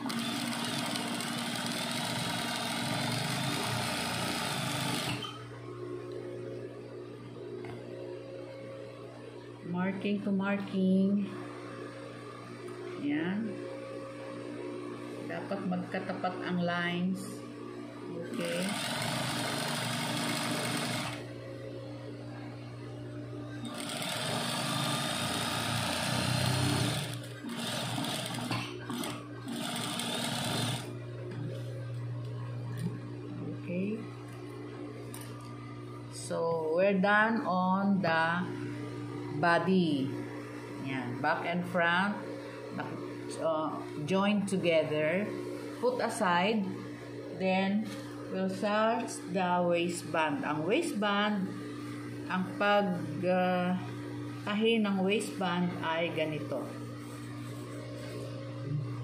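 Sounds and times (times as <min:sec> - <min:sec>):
sewing machine stitching: 0:00.0 - 0:05.4, 0:18.4 - 0:21.2, 0:23.6 - 0:30.9.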